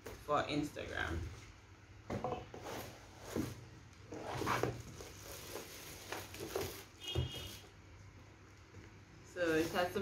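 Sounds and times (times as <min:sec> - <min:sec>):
cardboard and plastic rustling: 0:02.5 - 0:10.0.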